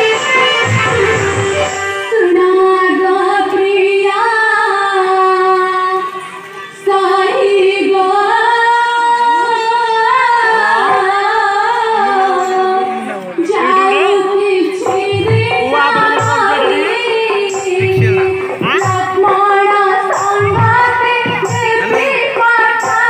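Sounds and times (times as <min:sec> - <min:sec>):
young female voice singing: 0:06.8 - 0:23.0
held accompaniment note: 0:10.6 - 0:23.0.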